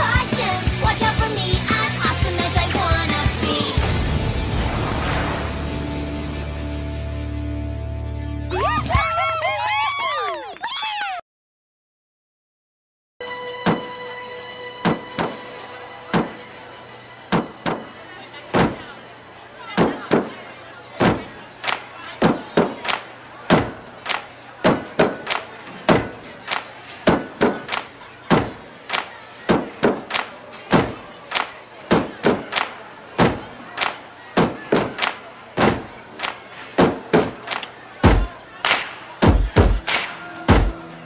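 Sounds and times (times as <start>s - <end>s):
sharp thumps and knocks: 13.7s - 13.9s, 14.8s - 15.4s, 16.1s - 16.4s, 17.3s - 17.9s, 18.6s - 18.9s, 21.0s - 21.4s, 38.0s - 38.3s, 39.2s - 39.9s.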